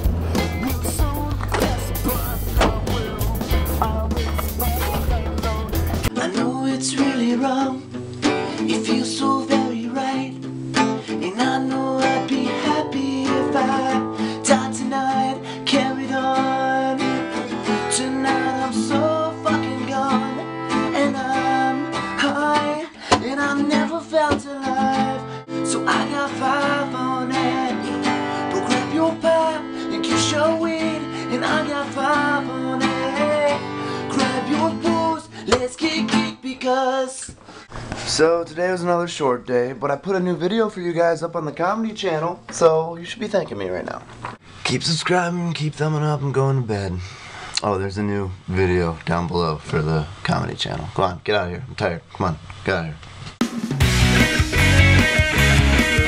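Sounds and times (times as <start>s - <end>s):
acoustic guitar strumming: 0.0s - 36.9s, 53.4s - 56.0s.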